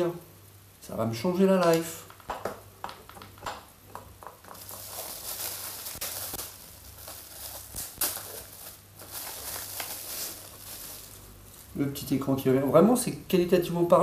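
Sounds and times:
bubble wrap bag crinkling: 1.6s - 13.1s.

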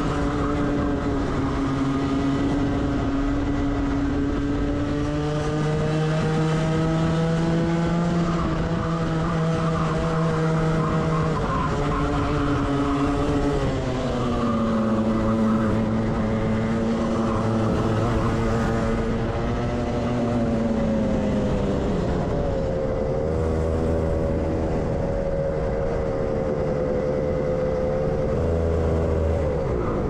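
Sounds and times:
kart engine running: 0.0s - 30.0s.

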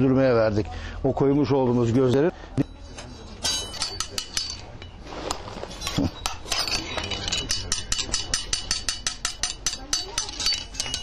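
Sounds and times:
metal rods clinking: 3.0s - 11.0s.

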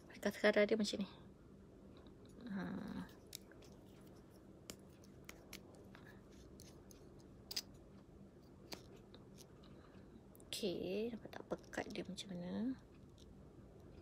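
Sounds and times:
plastic mascara tube clicks and rubbing: 3.2s - 7.7s, 8.5s - 9.6s.

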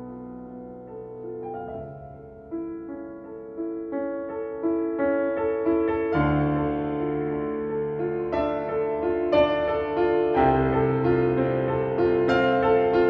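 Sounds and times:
slow piano music: 0.0s - 13.0s.

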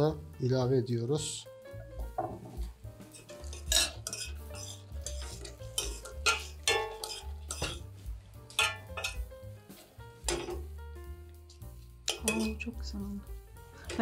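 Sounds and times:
soft background music: 0.0s - 14.0s
utensil scraping and clinking pan: 3.0s - 10.7s, 11.5s - 12.7s.

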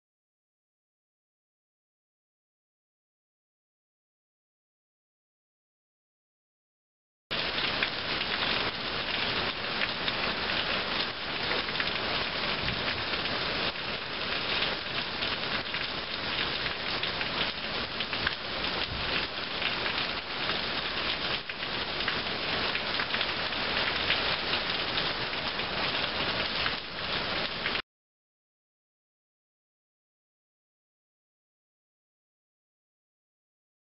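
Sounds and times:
steady rain: 7.3s - 27.8s.

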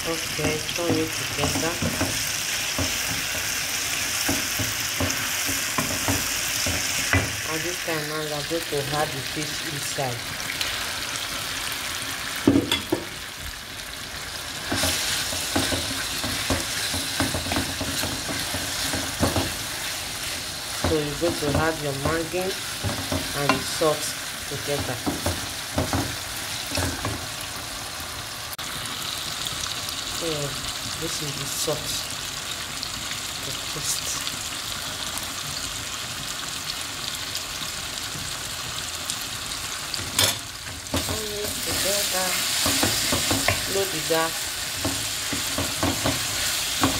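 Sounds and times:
food sizzling in a frying pan: 0.0s - 46.9s
wooden spoon scraping a pan: 14.6s - 23.8s.

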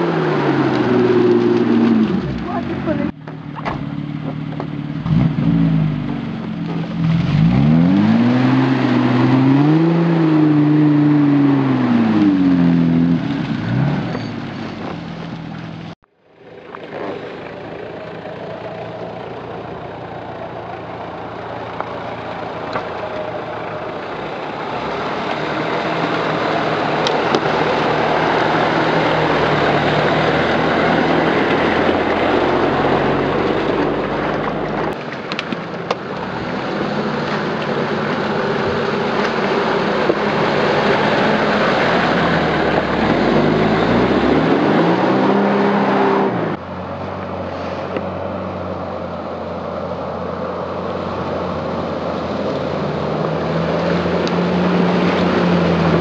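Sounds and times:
suv engine revving: 0.0s - 56.0s
vehicle splashing through water: 0.0s - 56.0s
water flowing in a stream: 15.1s - 44.2s, 46.5s - 56.0s.

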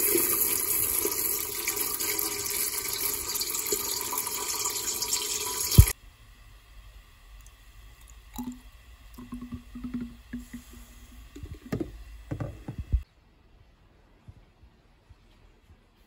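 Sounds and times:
liquid pouring into bottle: 8.0s - 12.8s.

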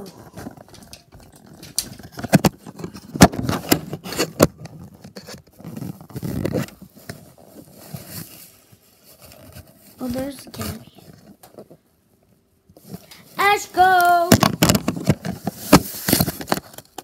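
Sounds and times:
fabric scraping rustle: 1.4s - 11.8s.

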